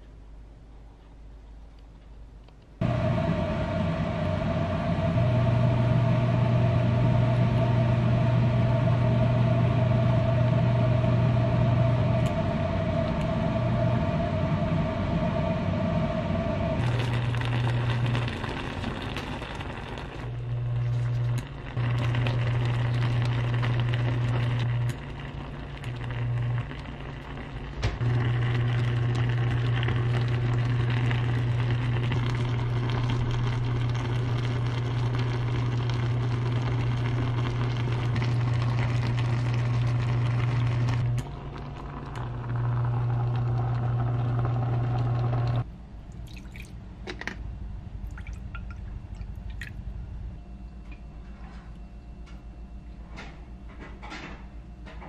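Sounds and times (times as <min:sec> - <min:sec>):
strong low hum: 0:02.8 - 0:53.7
sauce bubbling and sizzling: 0:16.8 - 0:45.7.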